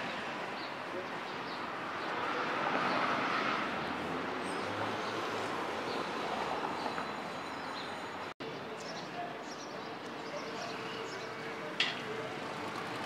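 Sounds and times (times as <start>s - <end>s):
street traffic hum: 0.0s - 13.0s
vehicle passing by: 2.2s - 6.7s.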